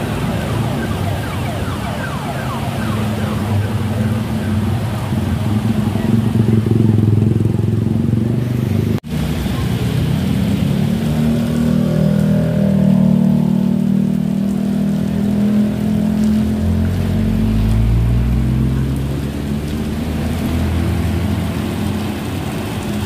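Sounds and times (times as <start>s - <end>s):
traffic on a wet road: 0.0s - 23.0s
motorcycle engines running: 3.2s - 17.0s
heavy rain hissing: 9.1s - 12.6s, 13.5s - 23.0s.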